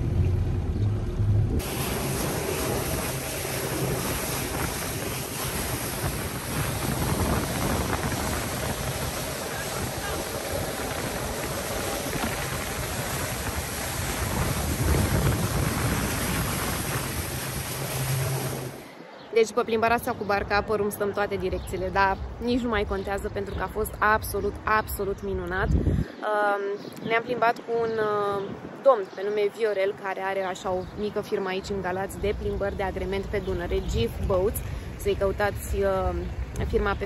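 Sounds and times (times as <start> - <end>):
wind on microphone: 0.0 - 18.9, 21.4 - 29.2, 30.6 - 37.0
faint boat engine: 0.0 - 19.0
rushing water: 1.6 - 19.0, 31.9 - 37.0.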